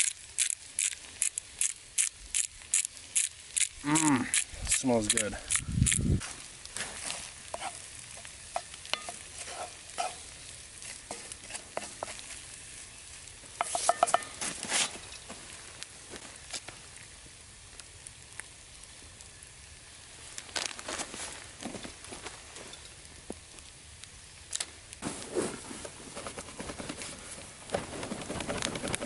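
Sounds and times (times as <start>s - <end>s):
food sizzling in a skillet: 0.0s - 20.9s
wooden spatula scraping: 6.2s - 12.9s, 13.6s - 15.4s.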